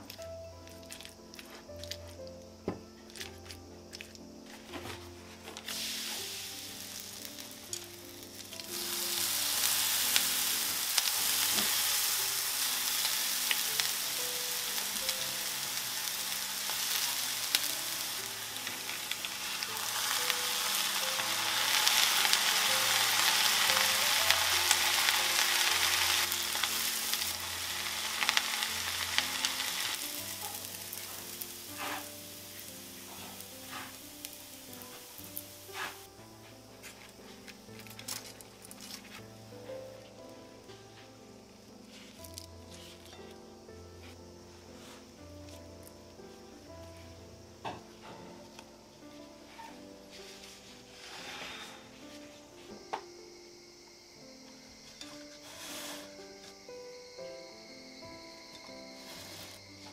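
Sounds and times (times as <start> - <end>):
batter sizzling in hot oil: 5.3 - 36.1, 58.9 - 59.9.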